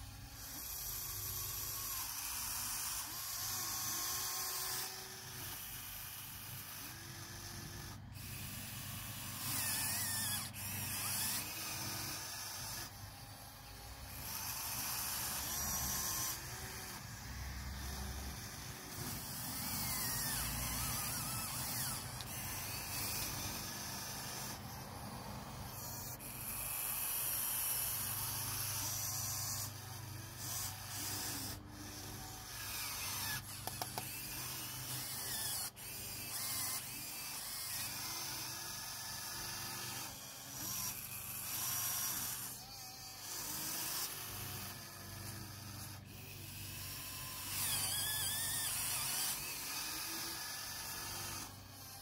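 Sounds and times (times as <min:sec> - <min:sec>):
electric motors whirring: 0:00.0 - 0:52.0
sharp clicks: 0:20.2 - 0:23.7, 0:33.2 - 0:34.1.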